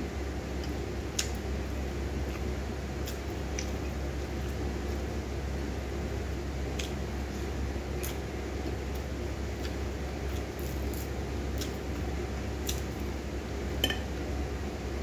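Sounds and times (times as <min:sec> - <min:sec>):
low background hum: 0:00.0 - 0:15.0
chewing: 0:08.9 - 0:11.9.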